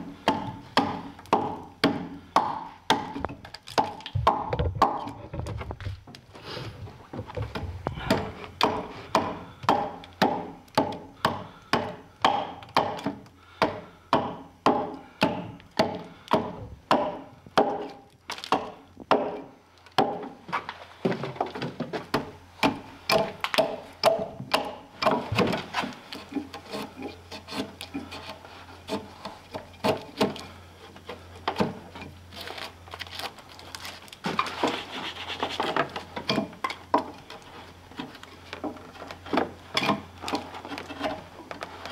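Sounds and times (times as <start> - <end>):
axe chopping into log: 0.3 - 5.2, 7.5 - 20.4, 22.1 - 25.7
knife shaving wood: 25.0 - 31.7, 32.3 - 36.2.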